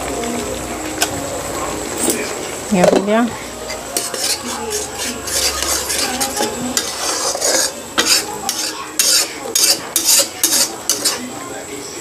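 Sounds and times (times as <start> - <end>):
spatula scraping a pan: 1.8 - 11.3.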